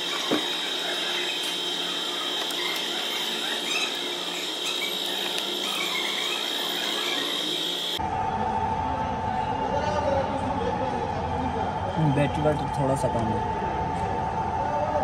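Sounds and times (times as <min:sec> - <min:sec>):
steady high-pitched whine: 0:00.0 - 0:09.4.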